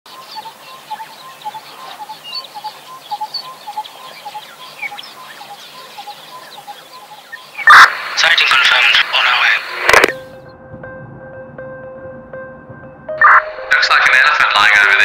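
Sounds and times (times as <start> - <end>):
high bird chirps: 0.1 - 7.8.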